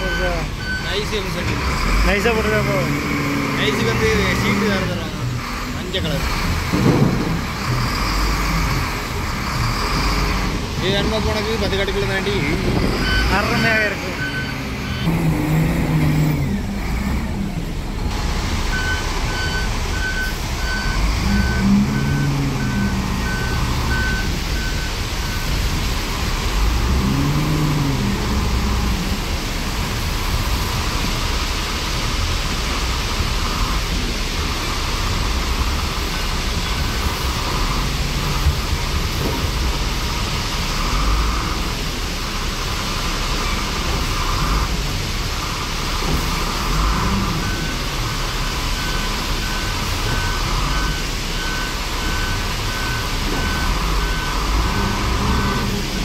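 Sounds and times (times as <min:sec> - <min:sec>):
diesel engine under load: 0:00.0 - 0:56.0
rapid beeping alarm: 0:12.3 - 0:15.1.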